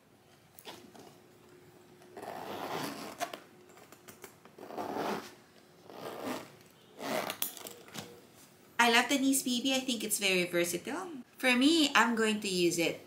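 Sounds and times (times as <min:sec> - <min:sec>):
metal zipper rasping: 0:02.1 - 0:03.4, 0:04.6 - 0:07.9.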